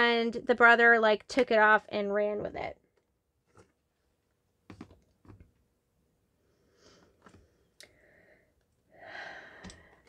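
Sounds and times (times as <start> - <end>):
cards clicking and tapping on table: 4.7 - 5.5.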